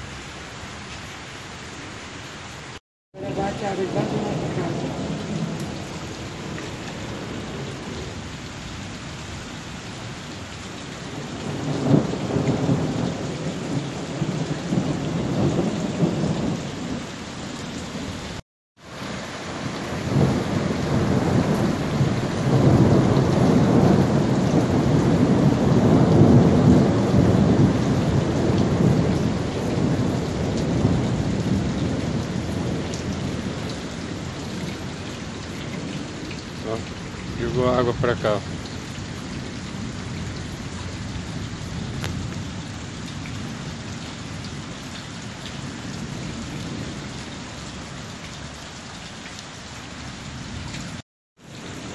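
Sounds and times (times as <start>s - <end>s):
heavy rain pouring: 0.0s - 51.9s
thunder rolling: 19.9s - 38.6s.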